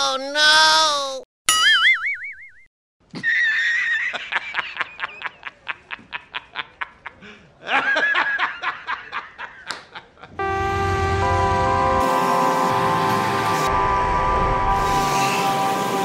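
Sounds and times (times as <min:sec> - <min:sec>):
man laughing hard: 0:03.1 - 0:10.4.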